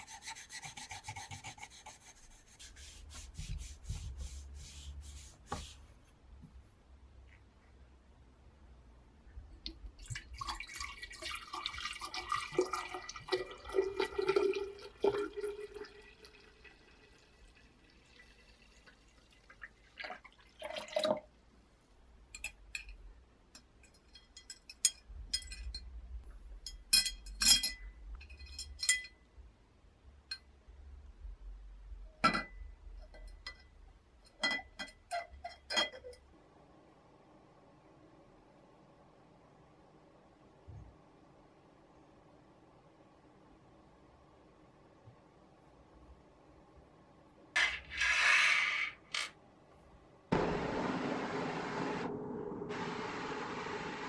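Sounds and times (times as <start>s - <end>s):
liquid pouring into glass jar: 10.0s - 21.3s
glass and metal clinks: 26.7s - 29.2s.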